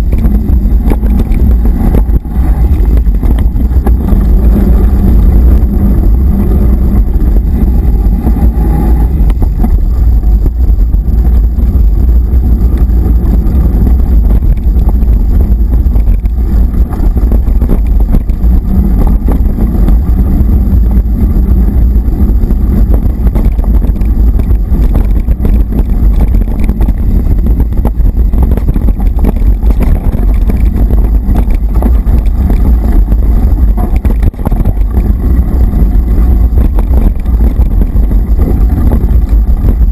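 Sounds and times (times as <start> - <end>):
bike rattling and knocking: 0.0 - 39.9
wind rumble on microphone: 0.0 - 39.9.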